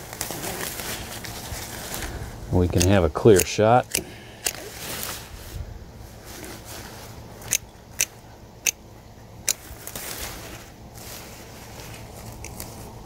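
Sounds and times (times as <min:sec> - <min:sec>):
leaves rustling: 0:00.0 - 0:13.0
pruners snipping: 0:02.7 - 0:04.8, 0:07.4 - 0:08.8, 0:09.4 - 0:10.0, 0:12.3 - 0:12.8.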